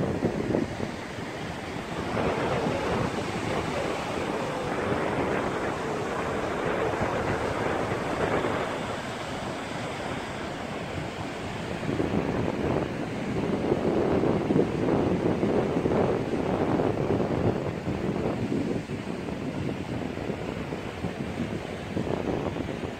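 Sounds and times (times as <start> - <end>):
surf washing onto beach: 0.0 - 22.9
wind rumbling on microphone: 0.0 - 22.9.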